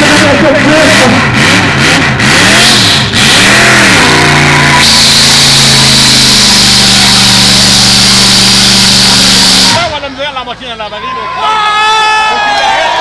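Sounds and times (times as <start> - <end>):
loud rushing noise: 0.0 - 10.2
car engines revving: 0.0 - 10.8.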